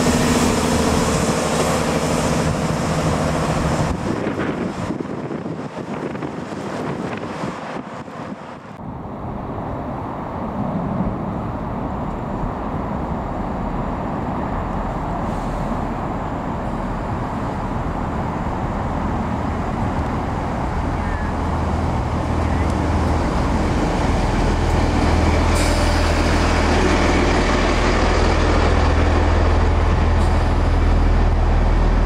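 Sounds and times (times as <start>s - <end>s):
road traffic rumble: 0.0s - 32.0s
train engine drone: 0.0s - 32.0s
wind buffeting the microphone: 2.3s - 25.5s.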